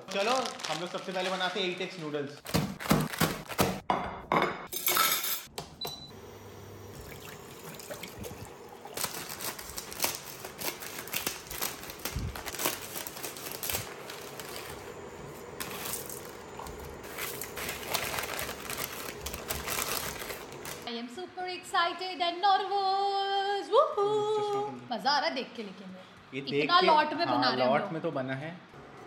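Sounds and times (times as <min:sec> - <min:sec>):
plastic packets crinkling: 0:00.0 - 0:03.8, 0:07.7 - 0:20.9.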